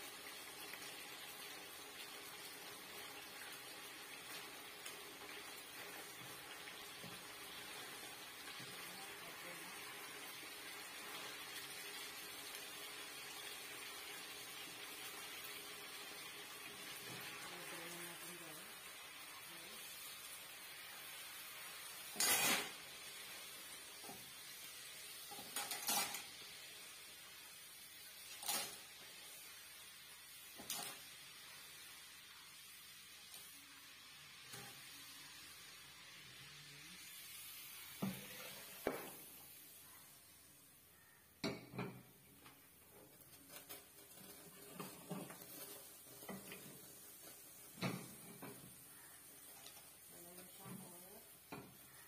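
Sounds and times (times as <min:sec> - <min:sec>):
faint steady hiss: 0:00.0 - 0:52.0
kitchenware clattering: 0:25.3 - 0:26.4, 0:28.3 - 0:28.9, 0:41.4 - 0:42.2.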